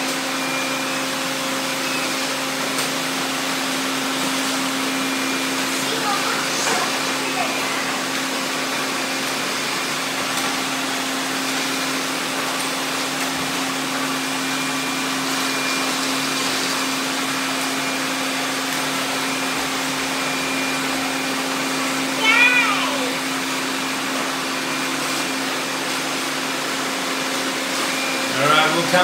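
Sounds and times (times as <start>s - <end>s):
robot vacuums whirring: 0.1s - 29.0s.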